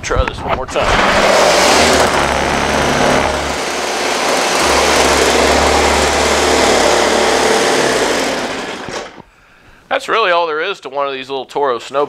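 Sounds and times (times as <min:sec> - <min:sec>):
snowblower engine running: 0:00.9 - 0:09.2.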